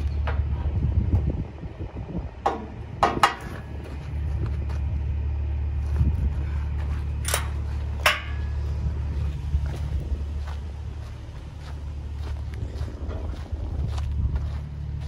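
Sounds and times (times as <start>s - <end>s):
truck diesel engine idling: 0.0s - 15.0s
metallic clanks from trailer hitch: 7.2s - 8.7s.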